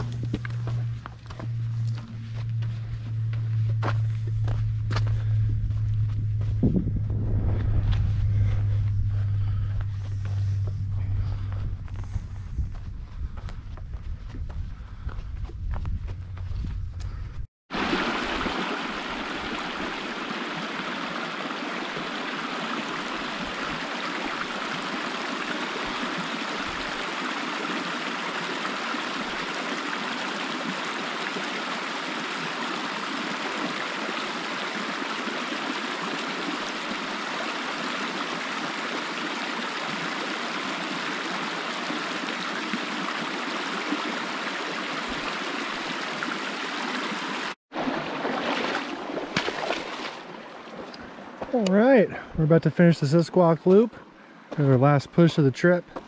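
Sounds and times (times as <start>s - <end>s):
creek water babbling: 17.7s - 51.7s.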